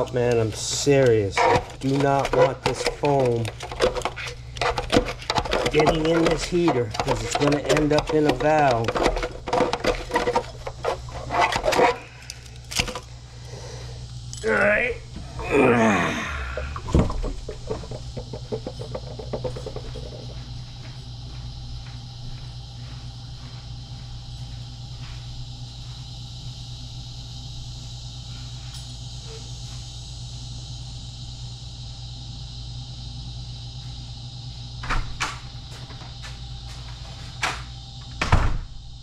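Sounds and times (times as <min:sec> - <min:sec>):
low hum: 0:00.0 - 0:39.0
sharp knocks and thumps: 0:00.2 - 0:12.0, 0:16.5 - 0:20.6.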